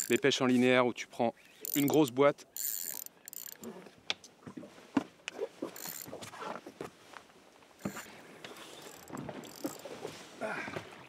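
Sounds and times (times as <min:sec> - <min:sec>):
fishing reel clicks: 0:00.0 - 0:00.3, 0:01.6 - 0:03.7, 0:05.8 - 0:06.1, 0:08.8 - 0:09.8.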